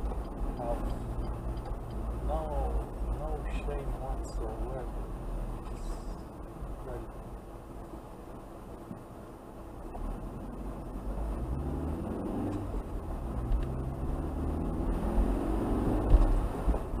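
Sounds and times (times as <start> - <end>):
car engine accelerating: 9.8 - 17.0.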